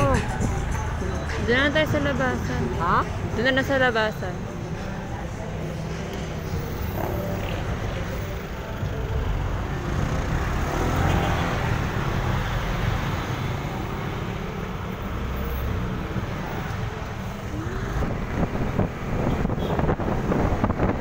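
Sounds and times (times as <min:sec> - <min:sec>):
wind rumble: 0:17.8 - 0:21.0.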